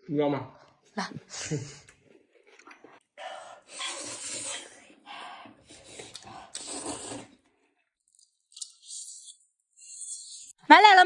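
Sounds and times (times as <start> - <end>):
slurping noodles: 2.4 - 10.6.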